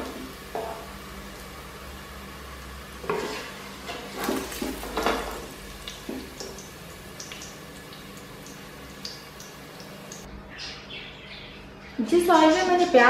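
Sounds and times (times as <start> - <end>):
oil crackling: 1.2 - 10.3.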